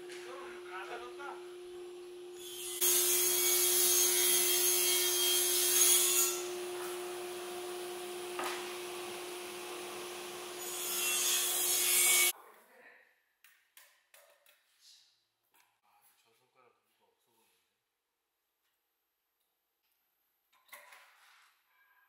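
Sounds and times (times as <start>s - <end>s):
power tool cutting wood: 1.0s - 12.3s.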